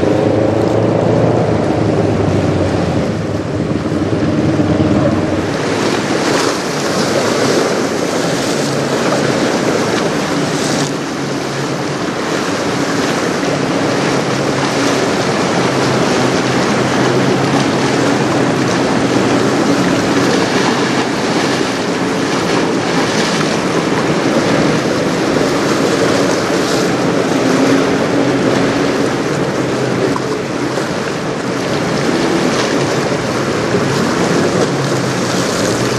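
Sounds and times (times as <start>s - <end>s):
choppy river water: 0.0s - 35.9s
gusty wind buffeting microphone: 0.0s - 35.9s.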